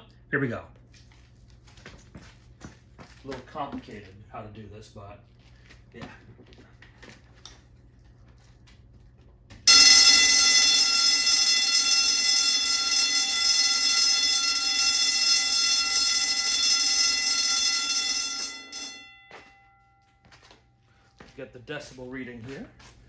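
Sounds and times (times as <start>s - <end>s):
electric fire alarm bell ringing: 9.7s - 21.1s.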